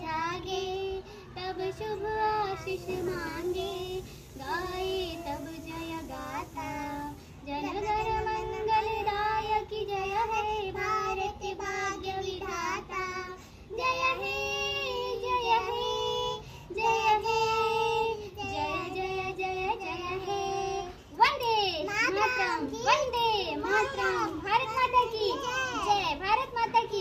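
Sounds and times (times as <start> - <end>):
children singing in unison: 0.0 - 21.0
woman singing: 0.0 - 21.0.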